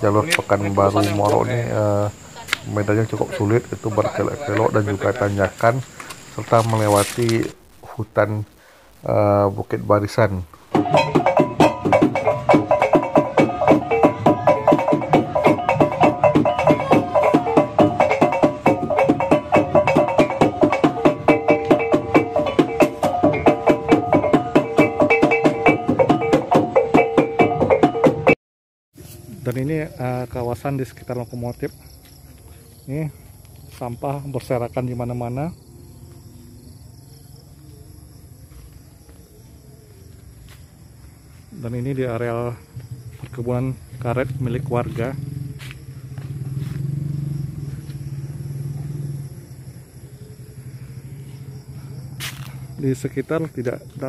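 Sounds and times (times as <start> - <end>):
vehicle engine humming: 0.0 - 7.6, 32.3 - 54.0
pitched percussion music: 10.7 - 28.4.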